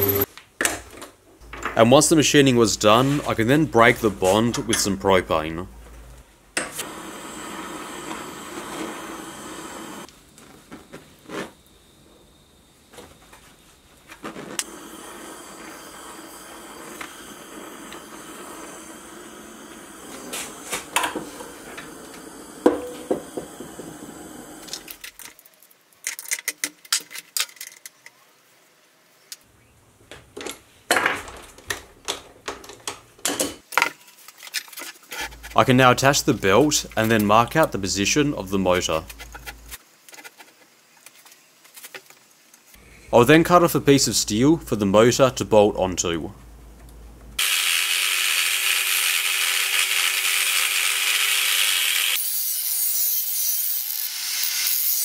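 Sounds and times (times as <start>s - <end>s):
propane torch hissing: 6.8s - 25.0s.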